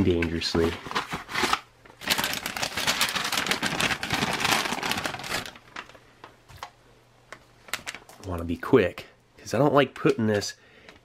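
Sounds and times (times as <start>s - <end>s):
plastic packaging crinkling: 0.2s - 6.7s, 7.3s - 8.4s.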